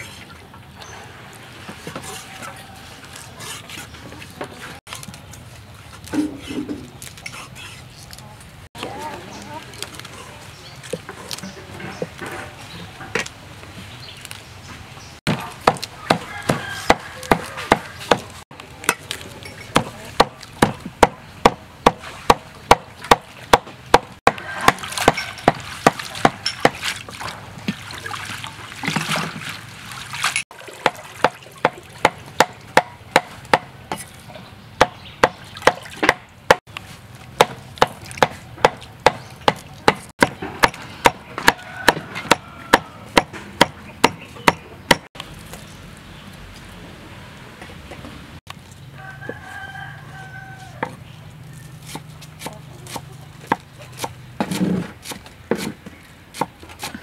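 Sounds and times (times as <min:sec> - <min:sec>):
cleaver chopping on cutting board: 0:15.3 - 0:18.3, 0:37.4 - 0:45.1, 0:51.9 - 0:55.8
water splashing in bowl: 0:24.4 - 0:32.7, 0:37.1 - 0:38.2.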